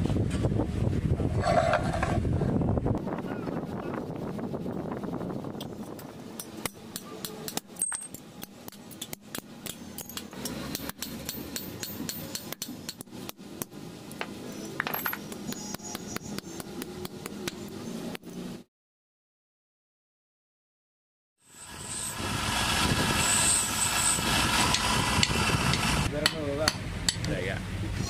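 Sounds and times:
hammer striking steel chisel: 6.4s - 13.7s, 24.7s - 27.3s.

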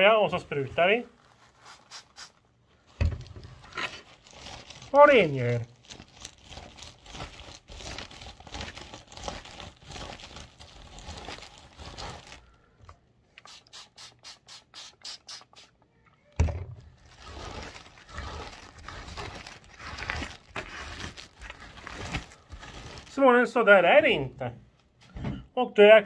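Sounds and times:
paper towel wiping a bag: 0.4s - 2.4s, 17.1s - 23.2s.

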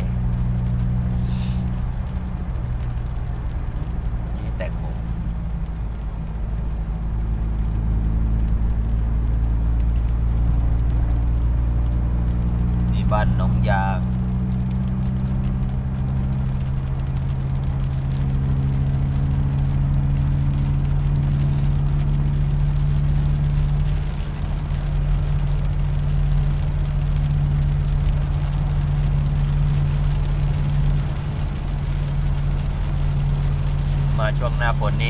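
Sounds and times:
car engine droning: 0.0s - 35.0s
rain and wet tyres hissing: 0.0s - 35.0s.

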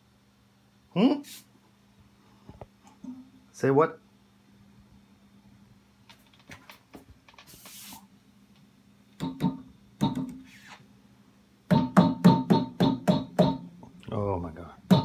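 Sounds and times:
amp ringing from cabinet taps: 11.7s - 13.7s.

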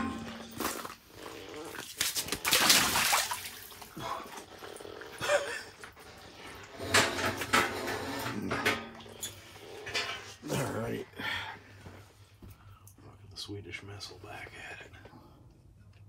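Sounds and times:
water splashing: 1.8s - 4.0s.

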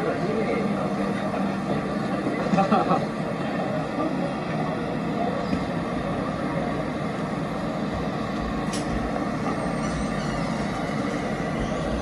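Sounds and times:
city street traffic: 0.0s - 12.0s
short sharp click: 8.7s - 8.9s.

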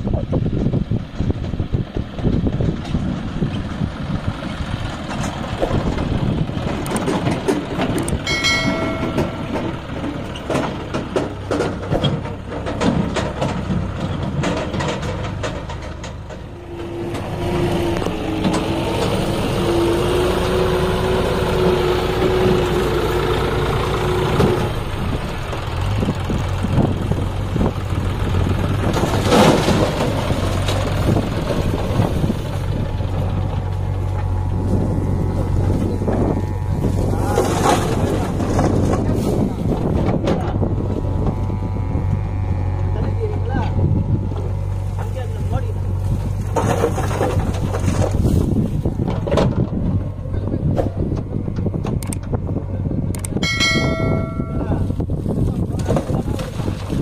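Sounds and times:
engine whine: 0.0s - 57.0s
tractor diesel engine running: 0.0s - 57.0s
trolley rattling and knocking: 5.0s - 20.5s, 22.3s - 41.4s.

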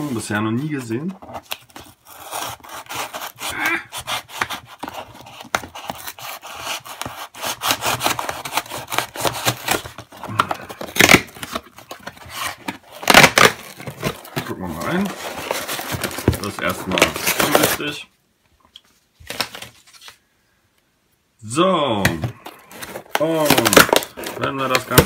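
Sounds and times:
cardboard ripping: 0.0s - 18.0s, 22.5s - 25.0s
knife sawing through cardboard: 1.8s - 10.0s.

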